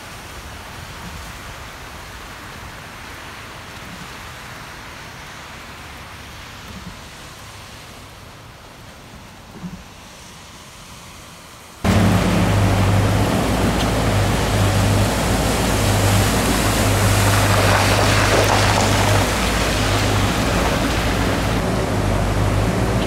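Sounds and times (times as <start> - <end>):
cars driving through water: 0.0 - 23.0
floodwater rushing: 10.2 - 23.0.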